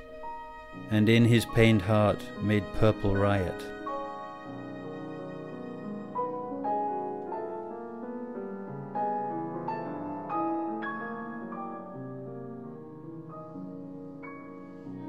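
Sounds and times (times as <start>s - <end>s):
slow soft solo piano: 6.2s - 15.0s.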